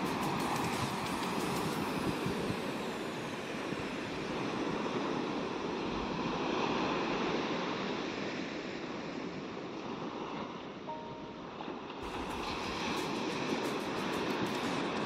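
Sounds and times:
surf breaking on beach: 0:00.0 - 0:10.6, 0:11.4 - 0:15.0.

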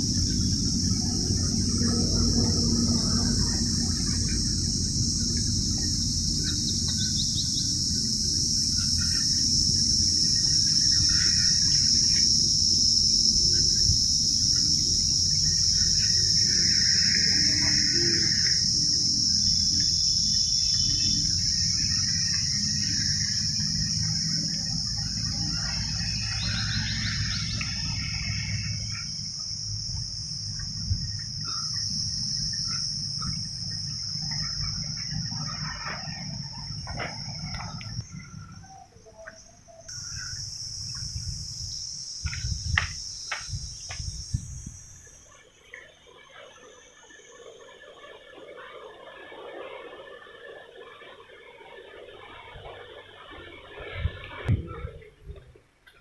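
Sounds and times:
low rumble: 0:00.0 - 0:39.1
high-pitched insect drone: 0:00.0 - 0:55.4
bird chirps: 0:05.8 - 0:07.8, 0:19.5 - 0:23.3, 0:25.0 - 0:29.1, 0:37.4 - 0:41.1.

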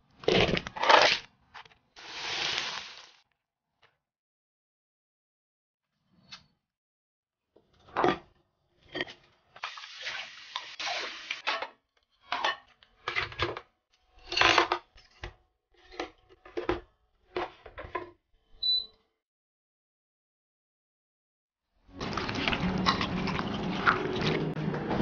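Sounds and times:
dishes and utensils clattering: 0:22.0 - 0:25.0.

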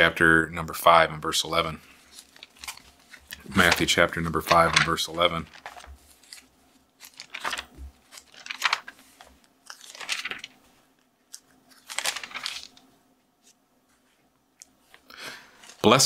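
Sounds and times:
book pages being turned: 0:01.8 - 0:14.2, 0:15.6 - 0:16.0.

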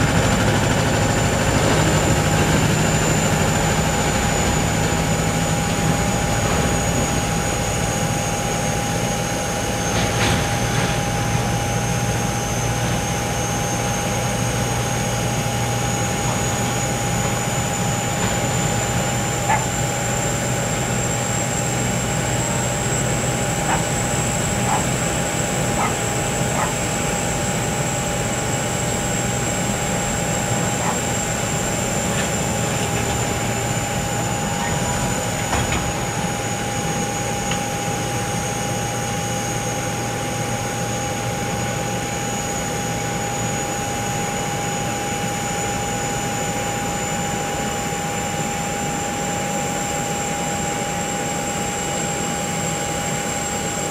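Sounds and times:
jet engine whine: 0:00.0 - 0:53.9.

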